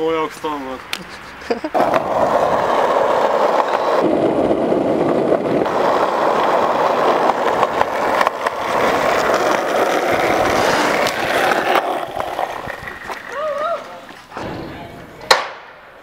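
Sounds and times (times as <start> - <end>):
bike tyres rolling over pavement: 1.7 - 14.4.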